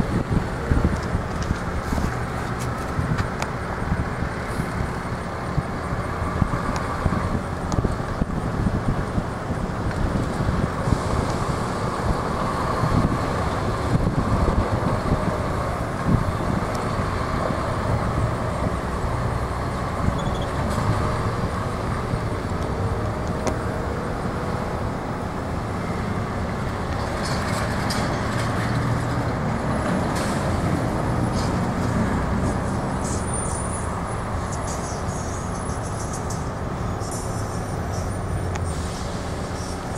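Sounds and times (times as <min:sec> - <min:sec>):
diesel truck driving off: 0:00.0 - 0:39.9
road noise: 0:00.0 - 0:39.9.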